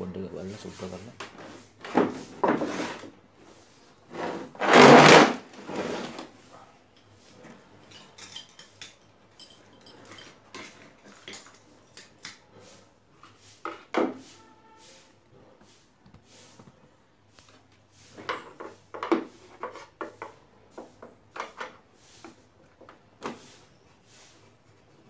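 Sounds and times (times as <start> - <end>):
plastic scraping on wood: 1.2 - 3.2, 4.1 - 6.4.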